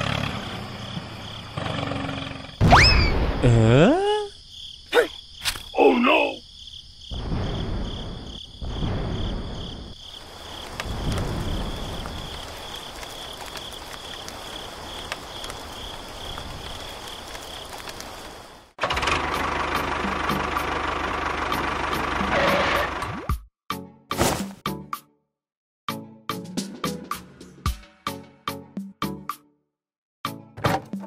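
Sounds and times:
insects chirring: 0.0s - 18.8s.

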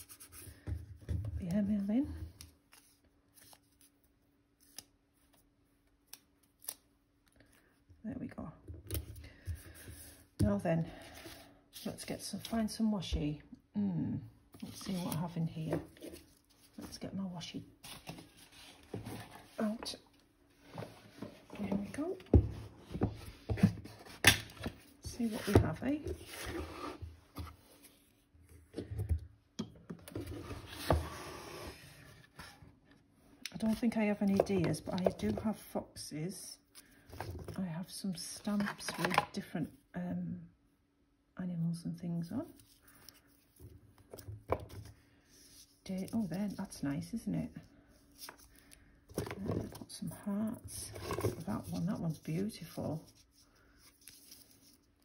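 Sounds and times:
craft supplies rummaged by hand: 14.5s - 29.2s, 33.6s - 36.0s, 37.0s - 39.4s, 42.4s - 55.0s
paper handling: 51.0s - 55.0s.

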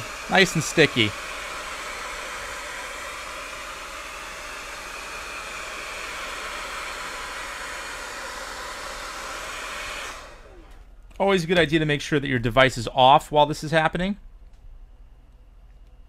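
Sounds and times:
hair dryer blowing: 0.0s - 11.7s.

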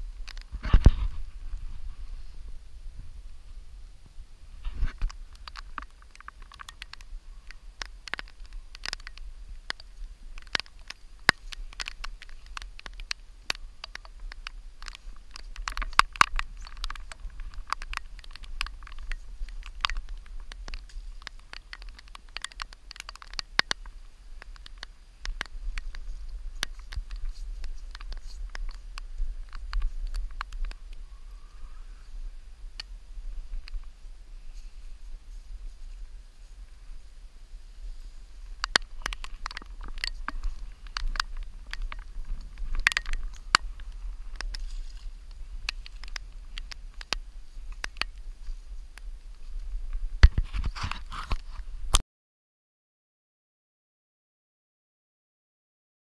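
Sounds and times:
clicks and rustles of clothing: 0.0s - 2.4s, 4.6s - 31.0s, 37.9s - 52.0s
wind buffeting microphone: 0.0s - 52.0s
light ticks and taps on camera: 0.2s - 1.2s, 4.8s - 31.0s, 32.8s - 33.9s, 38.5s - 52.0s.

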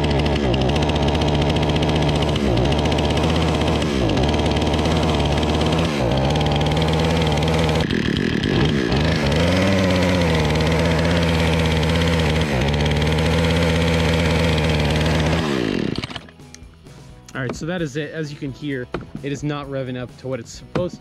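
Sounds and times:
chainsaw engine bogging: 0.0s - 16.4s.

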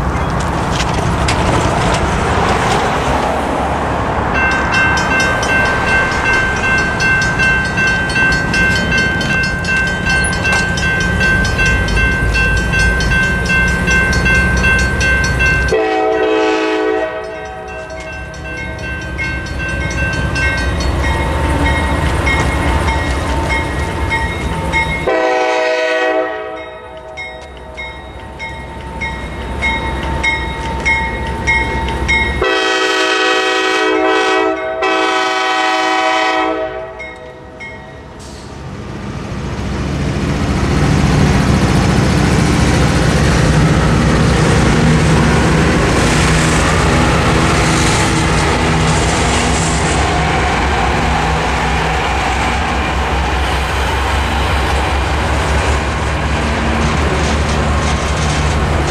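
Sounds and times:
diesel locomotive rumble: 0.0s - 36.8s, 38.0s - 58.9s
railroad crossing bells ringing: 4.3s - 38.5s, 42.6s - 57.2s
locomotive air horn blasts: 15.7s - 17.8s, 25.1s - 26.7s, 32.4s - 37.0s.

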